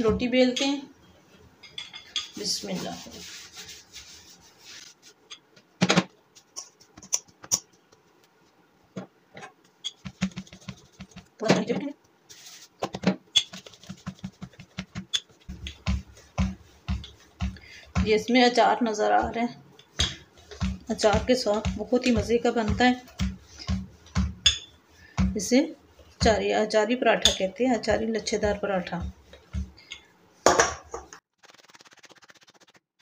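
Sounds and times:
rolling pin thumping and rubbing dough: 0:02.3 - 0:05.1, 0:09.9 - 0:32.5
rolling pin knocking on board: 0:13.9 - 0:18.2, 0:20.0 - 0:25.5.

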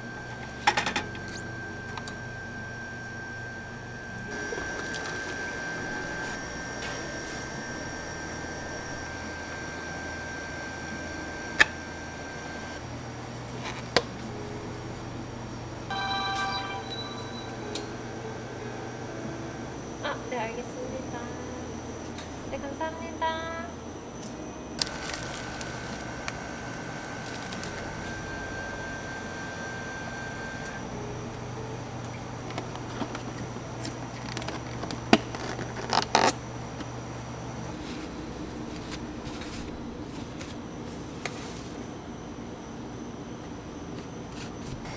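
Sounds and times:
steady low hum: 0:00.0 - 0:44.9
chord of electronic tones: 0:15.9 - 0:23.7.

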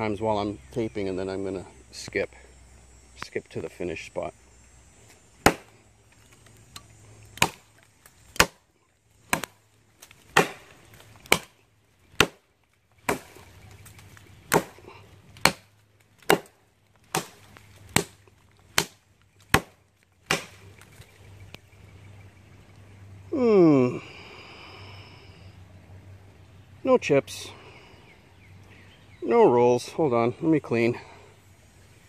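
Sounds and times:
knife chopping branch: 0:05.4 - 0:05.7, 0:06.8 - 0:08.7, 0:09.3 - 0:13.5, 0:14.5 - 0:20.6.

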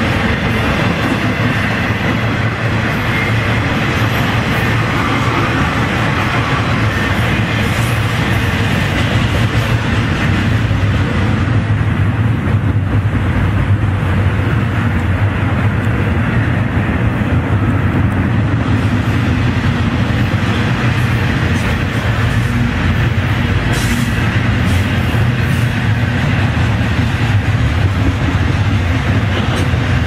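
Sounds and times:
freight train rumbling past: 0:00.0 - 0:30.0.

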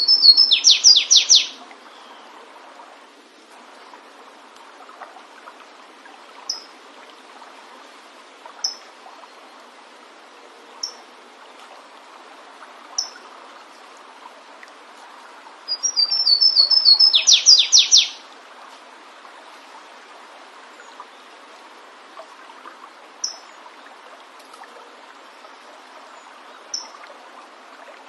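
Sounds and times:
short high bird calls: 0:00.0 - 0:02.2, 0:15.7 - 0:18.2
warbler song: 0:00.0 - 0:02.4, 0:06.4 - 0:06.8, 0:08.6 - 0:09.6, 0:10.8 - 0:11.1, 0:13.0 - 0:13.2, 0:15.7 - 0:18.2, 0:23.2 - 0:23.7, 0:25.0 - 0:27.1
running water: 0:00.0 - 0:28.0.

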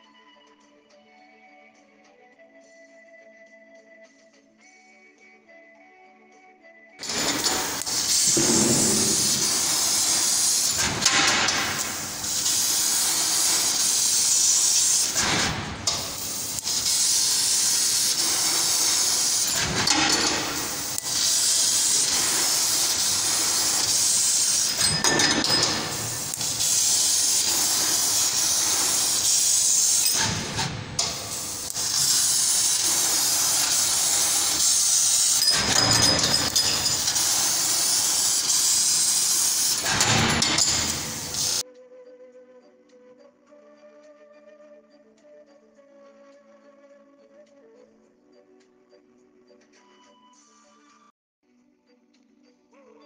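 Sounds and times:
laser cutter gas jet hiss: 0:07.0 - 0:41.6.

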